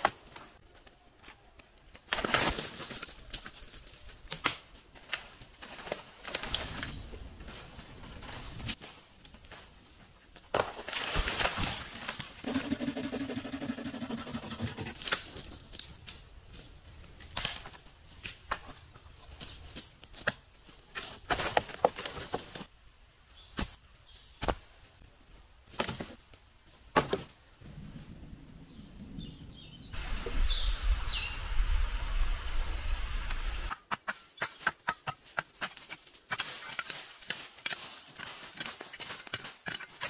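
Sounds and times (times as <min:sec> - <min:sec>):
rustling branches: 0:00.0 - 0:40.0
low buzz: 0:30.0 - 0:33.7.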